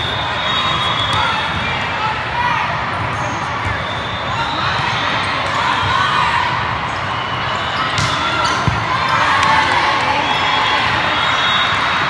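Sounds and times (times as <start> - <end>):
many overlapping voices: 0.0 - 12.0
volleyball being hit: 7.9 - 8.8.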